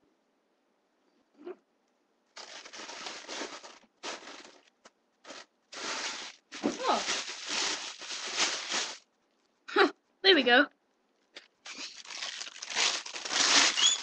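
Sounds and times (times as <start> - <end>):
bag crinkling: 2.3 - 9.1, 11.6 - 14.0
brief squeak: 13.7 - 14.0.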